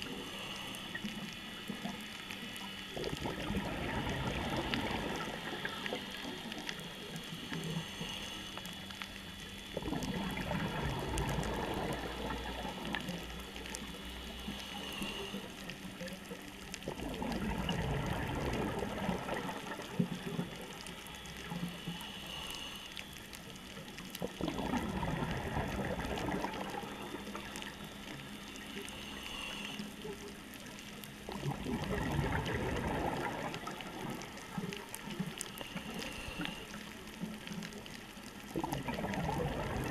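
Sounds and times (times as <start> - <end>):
faint clicks: 0.0 - 39.8
exhaled bubbles burbling: 2.8 - 8.0, 9.2 - 14.5, 15.7 - 21.9, 23.5 - 28.4, 31.1 - 39.9
regulator inhalation hiss: 14.4 - 15.5, 28.6 - 30.0.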